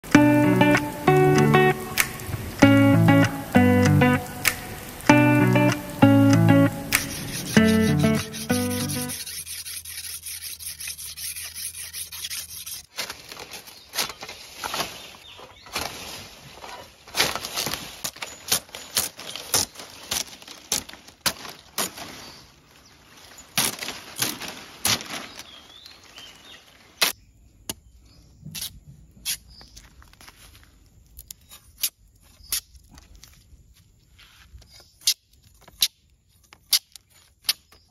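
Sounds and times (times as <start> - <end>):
knife chopping palm fronds: 6.9 - 9.3, 17.1 - 22.4, 23.6 - 25.5
knife on sharpening stone: 7.0 - 12.8.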